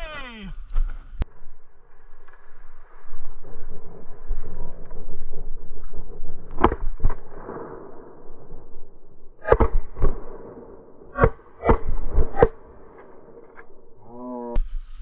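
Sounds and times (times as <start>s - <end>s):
low rumble: 0.6s - 14.7s
shotgun shots: 9.4s - 13.1s.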